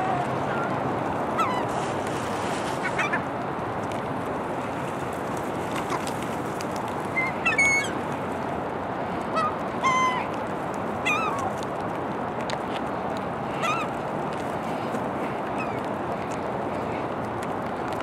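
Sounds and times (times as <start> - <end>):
gulls squawking: 0.0 - 2.0, 2.7 - 3.3, 7.1 - 8.0, 9.3 - 10.4, 11.0 - 11.6, 13.5 - 14.0, 14.7 - 15.9.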